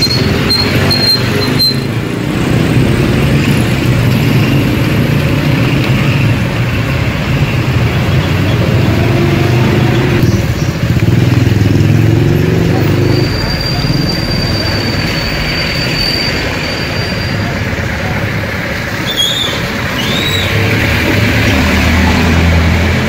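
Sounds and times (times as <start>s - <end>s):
low engine drone in traffic: 0.0s - 23.0s
thin high squeal: 13.0s - 17.5s.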